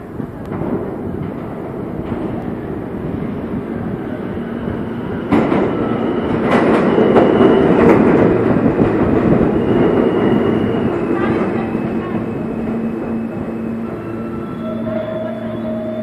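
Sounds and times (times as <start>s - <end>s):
subway train rumbling: 0.0s - 16.0s.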